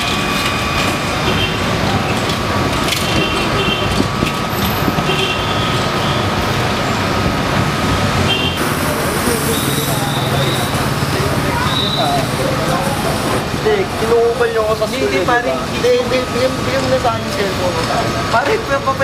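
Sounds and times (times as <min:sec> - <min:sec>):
traffic noise: 0:00.0 - 0:19.0.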